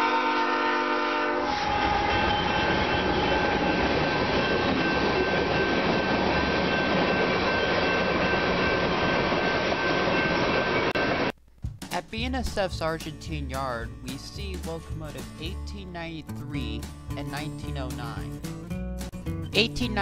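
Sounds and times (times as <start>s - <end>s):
train horn: 0.0s - 3.9s
train cars rumbling over rails: 0.0s - 11.3s.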